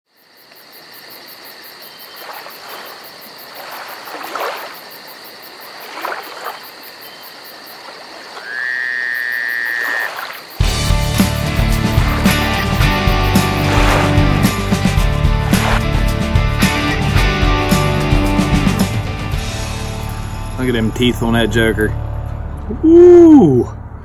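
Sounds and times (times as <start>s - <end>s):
frogs calling: 0.1s - 14.4s
insects pulsing hum: 0.1s - 17.9s
music: 10.6s - 22.7s.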